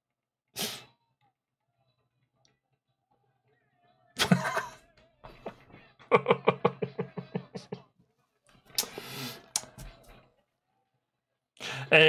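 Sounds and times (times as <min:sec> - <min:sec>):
man laughing hard: 0:04.2 - 0:04.8, 0:06.0 - 0:07.8.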